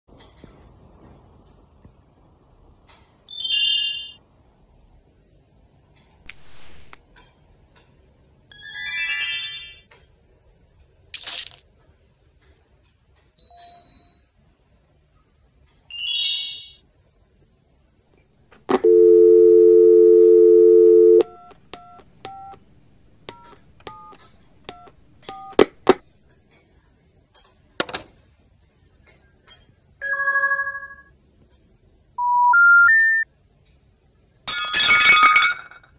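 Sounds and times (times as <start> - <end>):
loud steady buzzing tone: 18.7 - 22.0.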